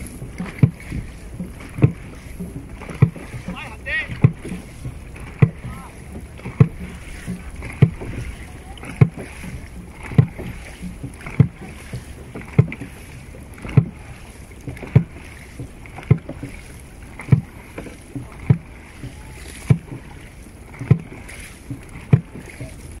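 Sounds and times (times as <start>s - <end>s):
paddle stroke thuds: 0.0s - 23.0s
water washing: 0.0s - 23.0s.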